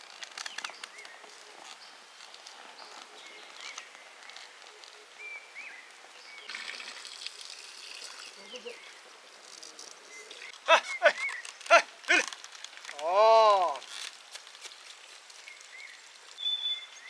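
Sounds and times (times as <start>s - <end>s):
sharp clicks and rustles: 0.0s - 5.0s, 9.4s - 13.0s, 13.6s - 16.4s
bird chirps: 10.1s - 11.8s, 15.4s - 17.0s.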